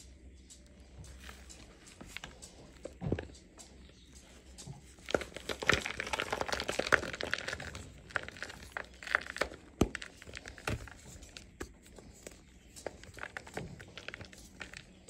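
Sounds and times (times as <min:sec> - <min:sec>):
chalk block crumbling and crunching: 0:04.8 - 0:15.0.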